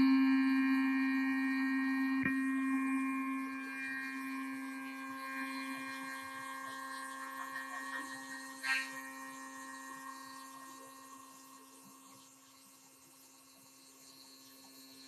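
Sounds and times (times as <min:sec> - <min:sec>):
milling spindle whine: 0:00.0 - 0:15.0.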